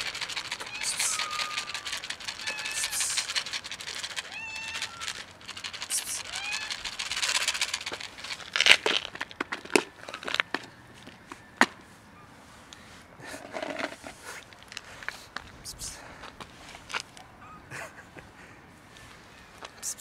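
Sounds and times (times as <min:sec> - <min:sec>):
plastic container rustling: 0:00.0 - 0:10.7
cat meowing: 0:00.6 - 0:03.1, 0:04.2 - 0:05.3, 0:06.2 - 0:06.9.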